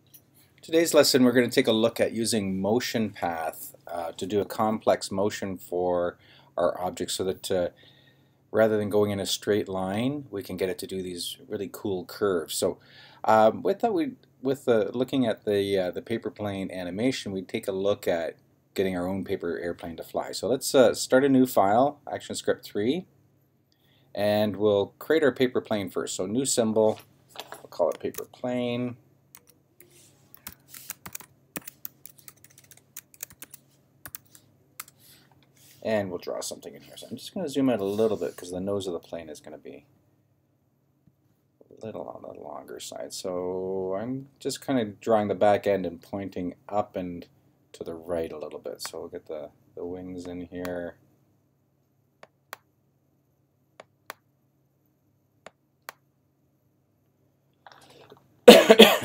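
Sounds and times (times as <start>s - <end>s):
keyboard keys clicking: 30.4s - 34.9s.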